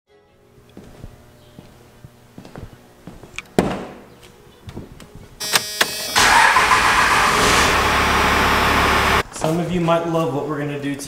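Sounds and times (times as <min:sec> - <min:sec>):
diesel engine cranking and idling: 0:06.1 - 0:09.2.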